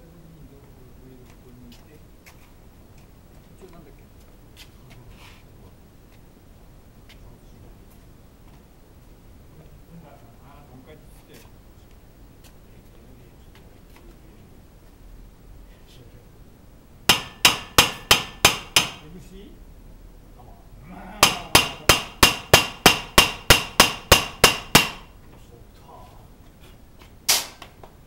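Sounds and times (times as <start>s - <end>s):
hammer striking steel: 17.1s - 19.0s, 21.2s - 25.1s, 27.3s - 27.7s.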